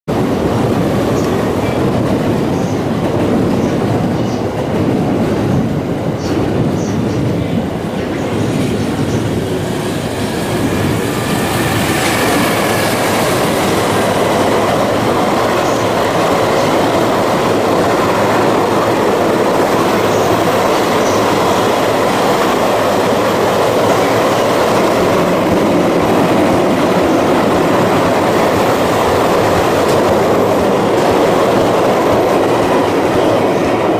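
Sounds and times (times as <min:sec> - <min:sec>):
freight train wheels on rails: 0:00.1 - 0:33.9.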